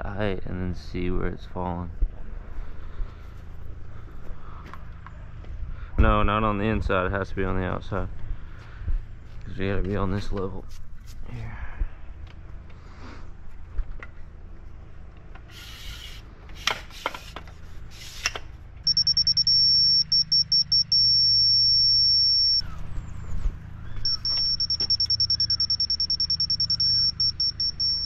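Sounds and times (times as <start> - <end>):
high piercing beeps and tone: 18.8 - 22.6, 24.0 - 28.0.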